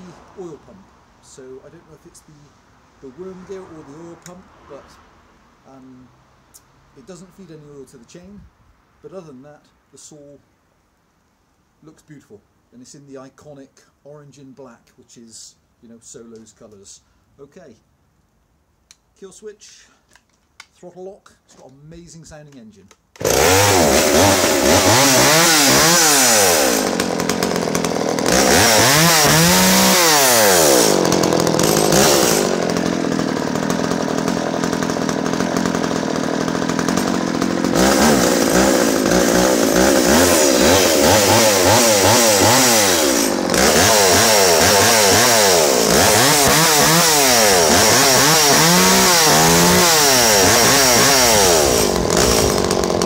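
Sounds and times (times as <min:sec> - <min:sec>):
chainsaw revving: 0:23.2 - 0:53.0.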